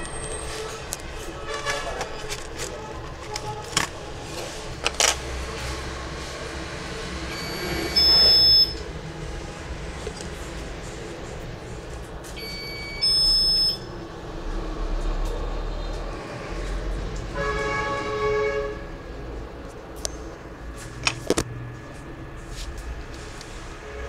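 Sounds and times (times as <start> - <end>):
high electronic beep: 7.3 - 8.8, 12.4 - 13.9
low horn-like tone: 23.7 - 24.0.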